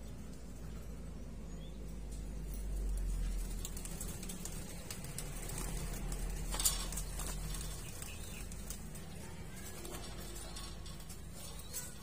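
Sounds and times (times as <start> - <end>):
wings flapping: 3.0 - 12.0.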